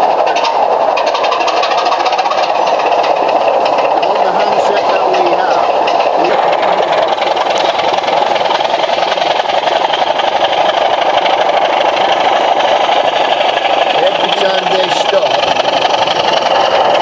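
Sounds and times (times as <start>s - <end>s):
thin diesel engine through speaker: 0.0s - 11.2s, 12.3s - 17.0s.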